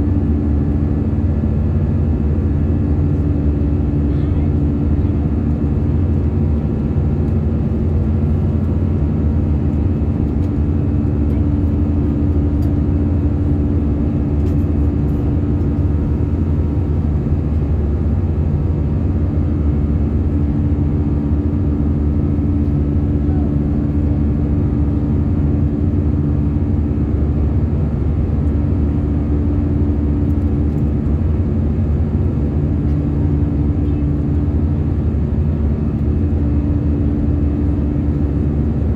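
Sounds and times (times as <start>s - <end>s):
airplane cabin drone: 0.0s - 38.9s.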